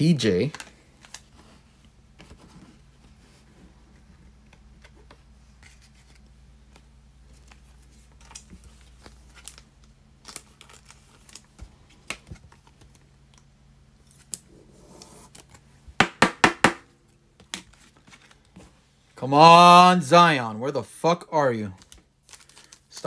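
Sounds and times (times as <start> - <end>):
cards clicking and rustling: 4.4 - 15.7, 21.7 - 23.0.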